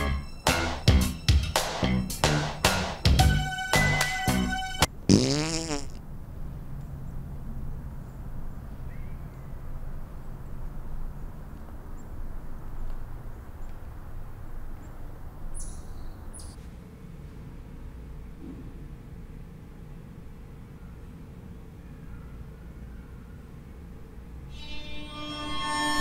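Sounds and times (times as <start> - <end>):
loud fart: 5.1 - 6.0.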